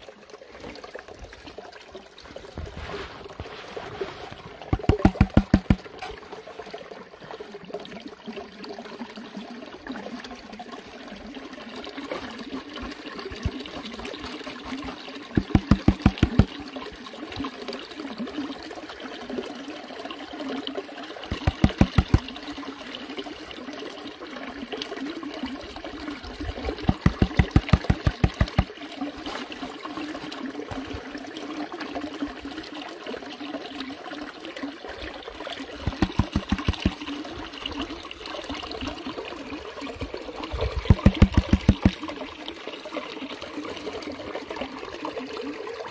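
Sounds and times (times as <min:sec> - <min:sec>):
water sloshing in plastic pan: 0:02.2 - 0:06.2, 0:12.1 - 0:16.6, 0:21.3 - 0:22.4, 0:26.4 - 0:31.1, 0:35.8 - 0:37.1, 0:40.5 - 0:42.1
rapid rhythmic thumping: 0:04.7 - 0:05.9, 0:15.4 - 0:16.5, 0:21.3 - 0:22.2, 0:26.9 - 0:28.7, 0:35.9 - 0:37.0, 0:40.8 - 0:42.0.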